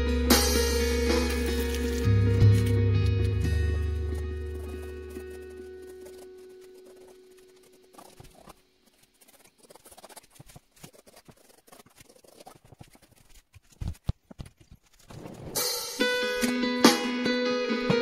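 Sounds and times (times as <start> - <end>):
strummed guitar: 0.0 - 6.7, 15.7 - 18.0
paintbrush scratching on canvas: 1.2 - 15.7.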